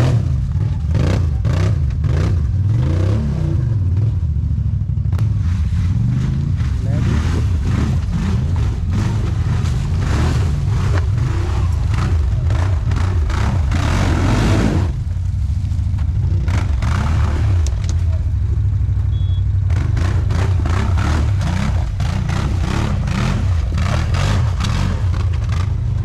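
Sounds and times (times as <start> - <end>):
atv engine under load: 0.0 - 26.0.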